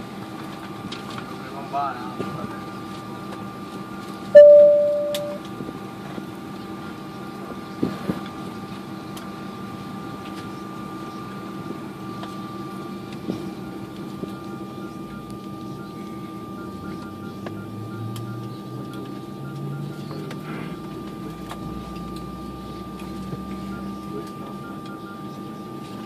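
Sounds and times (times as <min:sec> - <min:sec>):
airliner cabin engine hum: 0:00.0 - 0:26.0
cabin chime: 0:04.4 - 0:05.4.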